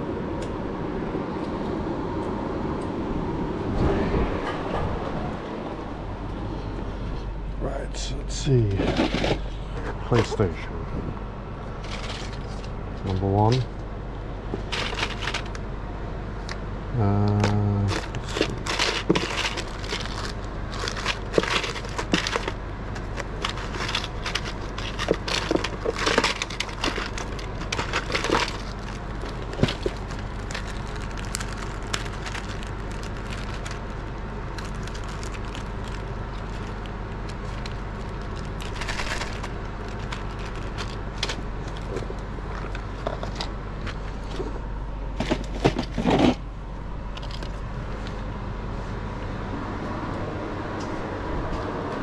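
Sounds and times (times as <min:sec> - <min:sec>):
steady background hum: 0:00.0 - 0:52.0
clicks and scrapes of plastic: 0:14.5 - 0:15.6, 0:17.2 - 0:44.4.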